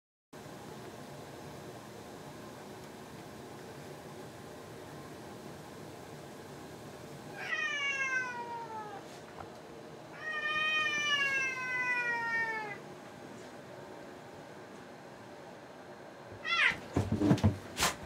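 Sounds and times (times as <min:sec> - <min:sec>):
cat meowing: 0:07.3 - 0:09.1, 0:10.1 - 0:12.8, 0:16.4 - 0:16.9.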